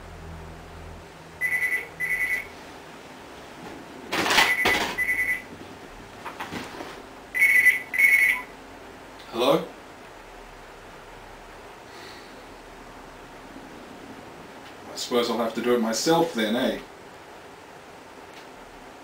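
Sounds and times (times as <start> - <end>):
mobile phone ringing: 1.4 - 2.5, 4.3 - 5.5, 7.4 - 8.5.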